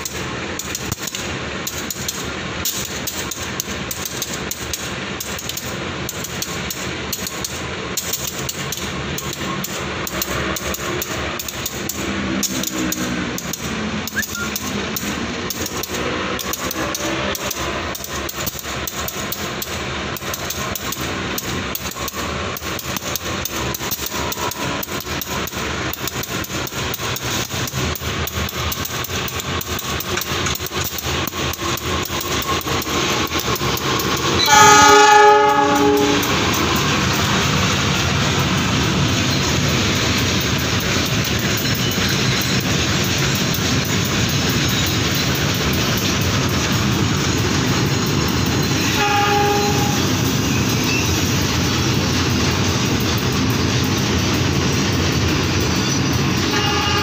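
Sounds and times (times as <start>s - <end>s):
low engine drone: 0.0s - 26.0s.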